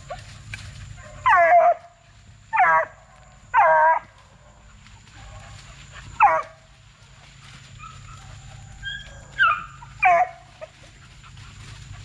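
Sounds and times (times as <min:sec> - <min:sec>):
dog yelping: 0:01.0 - 0:01.9, 0:02.5 - 0:04.2, 0:06.1 - 0:06.6, 0:07.8 - 0:11.0.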